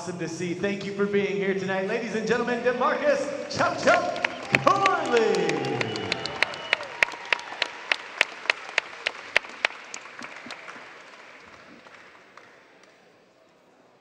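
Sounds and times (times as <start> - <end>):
audience applauding: 2.8 - 13.2
person clapping loudly: 3.6 - 13.0.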